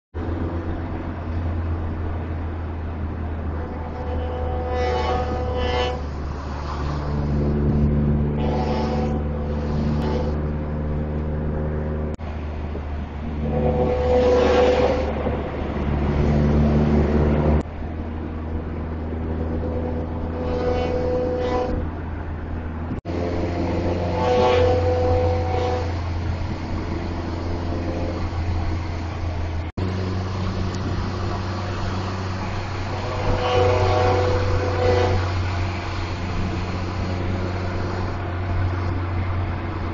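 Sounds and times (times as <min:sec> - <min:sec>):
road and engine rumble: 0:00.0 - 0:39.9
bus air horns blaring: 0:03.5 - 0:07.4, 0:08.3 - 0:10.4, 0:13.4 - 0:15.2, 0:19.6 - 0:21.9, 0:23.1 - 0:27.0, 0:30.7 - 0:38.9.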